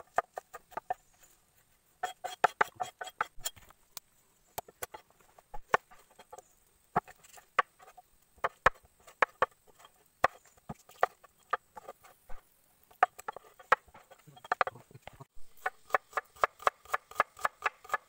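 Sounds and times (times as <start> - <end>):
cleaver chopping on wooden board: 2.0 - 3.3, 15.6 - 18.0.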